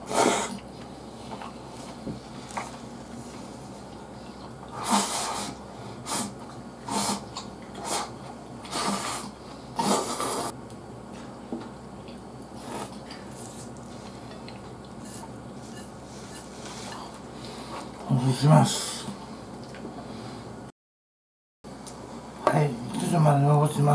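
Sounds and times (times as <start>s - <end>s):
person slurping noodles: 0.0s - 0.6s, 4.7s - 10.6s.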